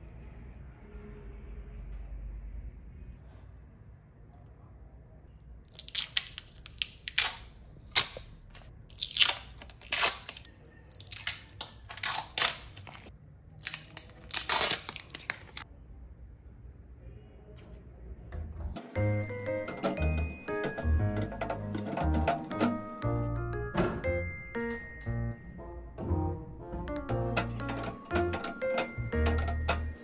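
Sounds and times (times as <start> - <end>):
adhesive tape peeling and crackling: 5.7 - 15.6.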